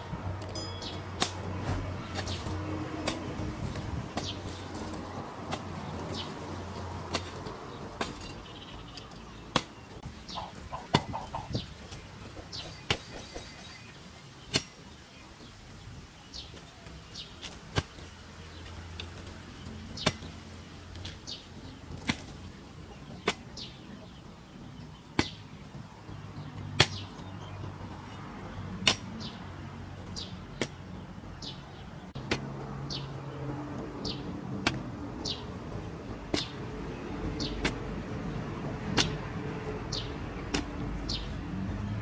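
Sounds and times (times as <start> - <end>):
hoe chopping into dry soil: 1.2 - 15.5, 16.4 - 19.3, 19.9 - 21.3, 21.9 - 23.9, 25.0 - 25.7, 26.4 - 27.6, 28.8 - 29.4, 30.2 - 30.8, 34.1 - 35.4, 36.2 - 36.7, 37.4 - 38.1, 38.8 - 39.3, 39.9 - 41.4.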